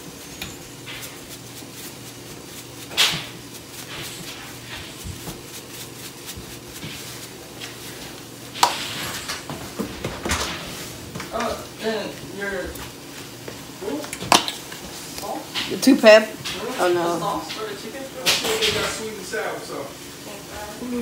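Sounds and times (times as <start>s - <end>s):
salt shaker ticking and pattering: 0.0s - 9.4s
shaker knocking: 0.3s - 10.8s.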